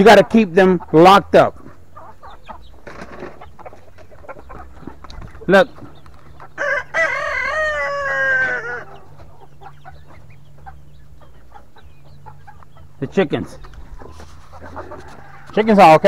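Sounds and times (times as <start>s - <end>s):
chickens clucking: 0.0s - 16.0s
rooster crowing: 6.6s - 9.1s, 14.8s - 15.6s.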